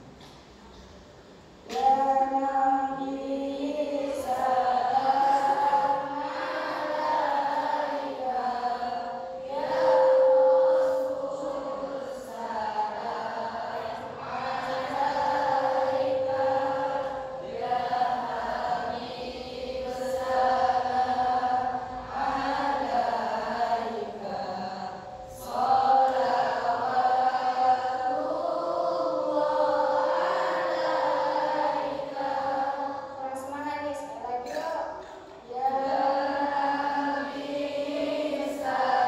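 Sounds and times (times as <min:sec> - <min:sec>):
girls chanting together: 0:01.7 - 0:39.0.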